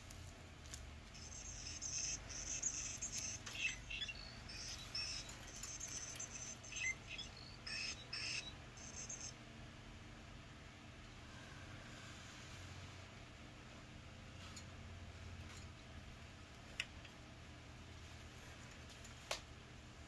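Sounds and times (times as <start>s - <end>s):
electronic bird chirps: 1.1s - 9.4s.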